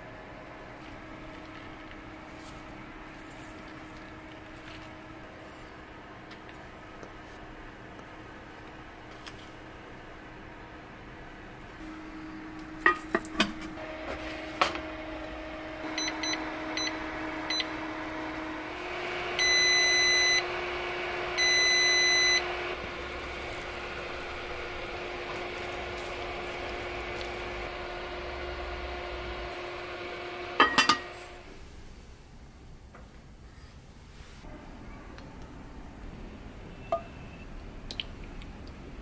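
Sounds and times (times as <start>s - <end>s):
steady hum: 0.0s - 32.4s
metal pot clinks: 30.6s - 31.1s.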